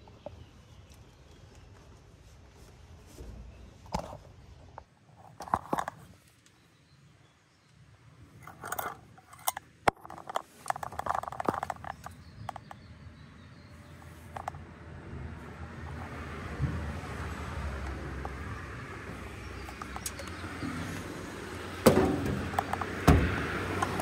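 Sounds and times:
rustling: 8.4 - 12.7
sharp clicks and small knocks: 8.4 - 12.9, 14.3 - 14.6, 15.9 - 24.0.

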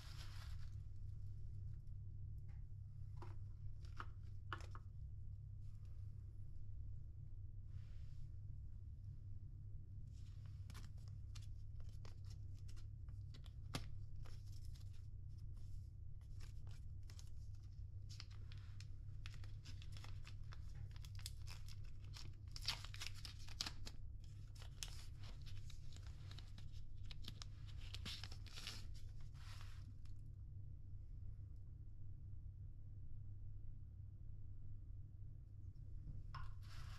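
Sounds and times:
steady low hum: 0.0 - 23.1
paper tearing and crinkling: 19.3 - 23.9.

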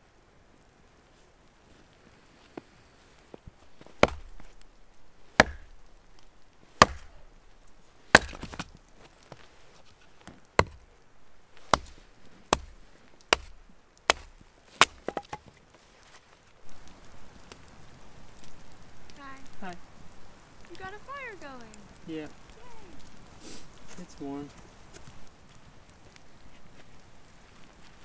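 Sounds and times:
hatchet chopping wood: 3.8 - 4.6, 5.3 - 5.9, 6.8 - 7.3, 8.1 - 8.8, 10.6 - 10.9, 11.6 - 15.5.

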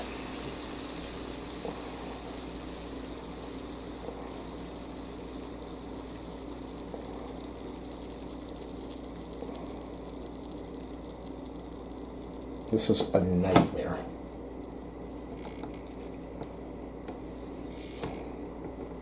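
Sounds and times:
meat sizzling on a grill: 0.0 - 13.5
low steady hum: 0.0 - 19.0.

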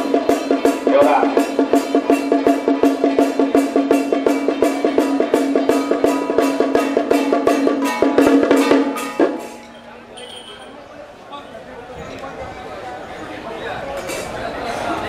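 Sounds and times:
drums beaten fast: 0.0 - 9.7
gongs struck: 0.0 - 9.8.

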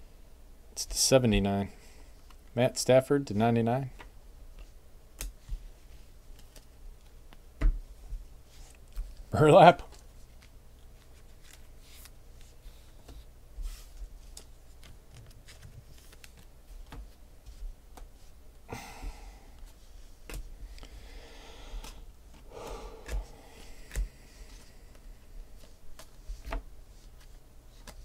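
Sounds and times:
trading cards clicking and tapping: 23.0 - 25.0.

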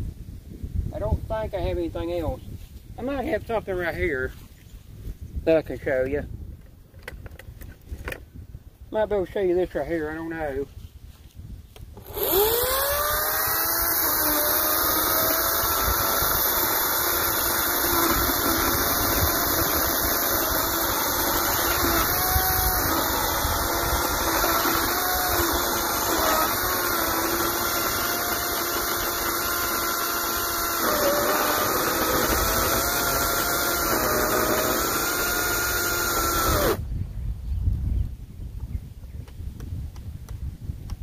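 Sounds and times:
battery chainsaw cutting log: 12.0 - 36.8.

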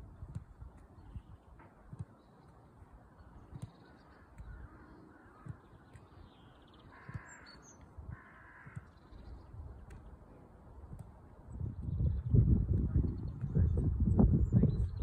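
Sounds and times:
soft low thuds: 0.0 - 10.1
crow cawing: 6.8 - 8.9.

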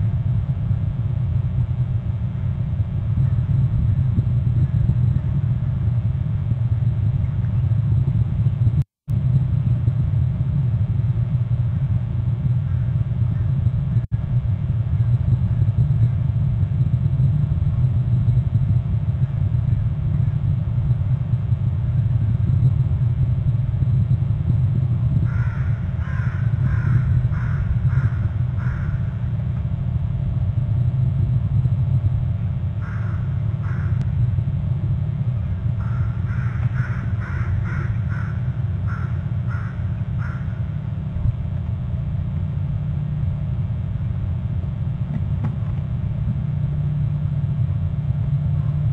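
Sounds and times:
steady low rumble: 0.0 - 48.9
bird calling: 25.3 - 29.3, 32.8 - 34.2, 35.7 - 40.8.

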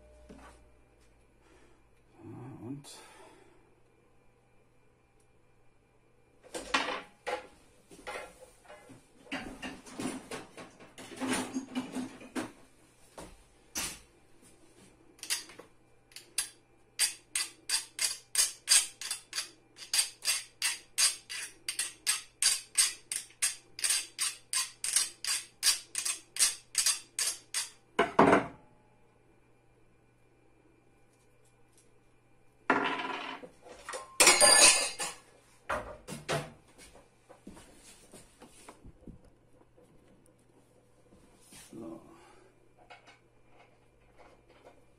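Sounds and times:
clicks and knocks of parts: 15.2 - 27.7.

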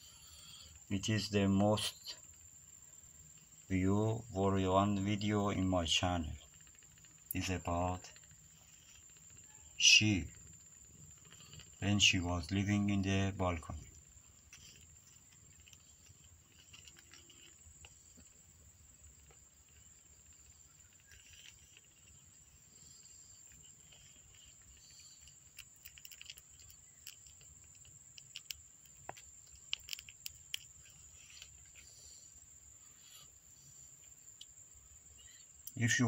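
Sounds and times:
kittens suckling clicks: 10.3 - 11.8, 20.9 - 32.4.

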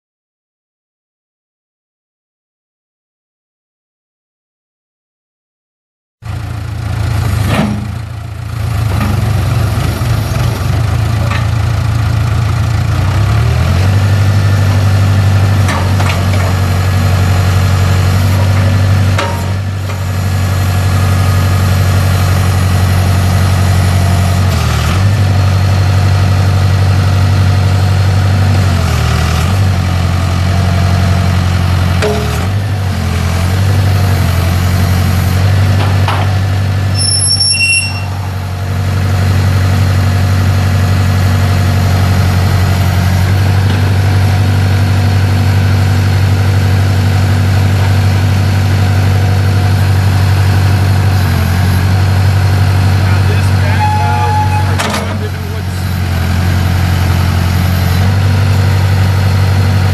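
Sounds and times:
diesel backhoe engine running: 6.2 - 59.9
high chirps: 37.0 - 38.2.

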